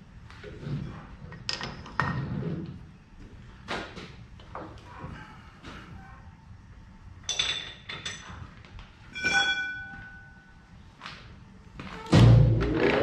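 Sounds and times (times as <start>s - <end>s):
metal clinks with ringing: 9.1s - 10.5s.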